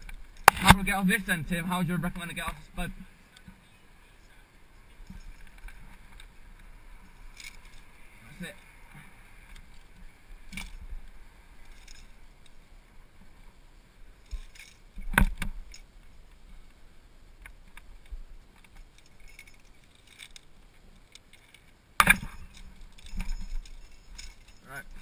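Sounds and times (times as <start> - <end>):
climbing gear clinking: 4.1 - 13.5, 14.1 - 16.8, 17.4 - 25.0.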